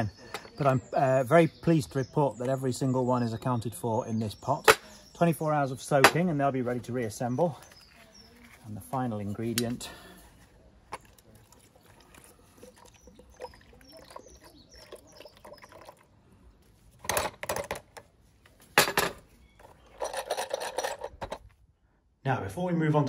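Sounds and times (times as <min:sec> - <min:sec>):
vinegar pouring into plastic tub: 0:11.0 - 0:16.2.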